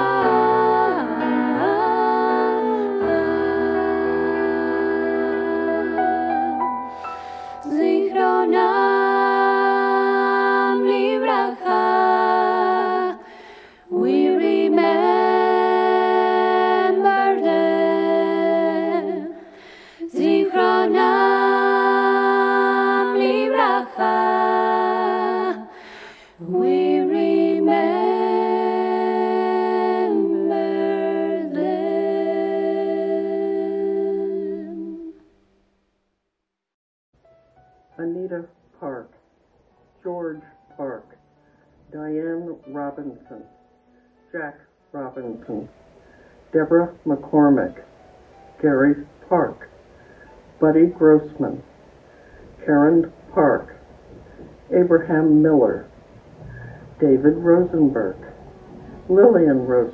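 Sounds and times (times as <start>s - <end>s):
woman singing a cappella harmony: 0.0s - 35.2s.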